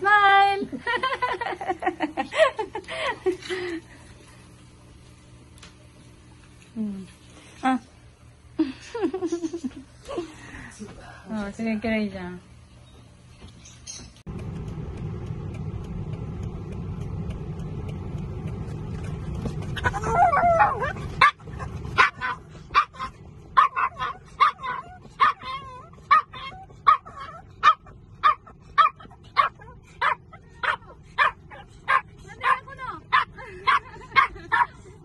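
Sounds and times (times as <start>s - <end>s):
low hum: 0.0s - 35.0s
small dog whining: 19.8s - 21.0s
small dog yipping: 19.8s - 21.4s, 22.0s - 33.8s.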